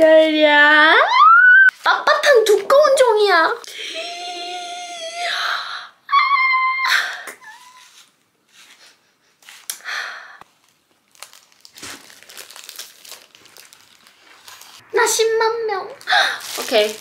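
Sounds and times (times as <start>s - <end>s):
plastic film crinkling: 10.4s - 14.9s, 15.9s - 17.0s.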